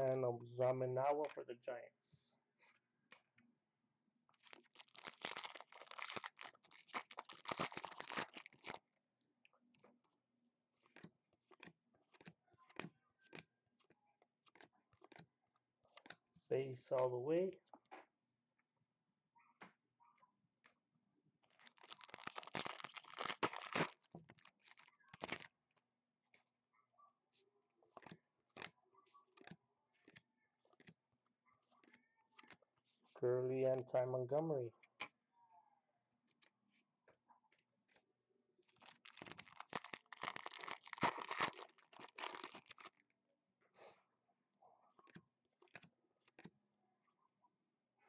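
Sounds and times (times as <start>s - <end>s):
cards rustling: 4.4s - 8.8s, 28.0s - 28.7s, 38.7s - 43.0s
foil wrapper tearing and crinkling: 4.4s - 8.8s, 21.5s - 25.5s, 38.7s - 43.0s.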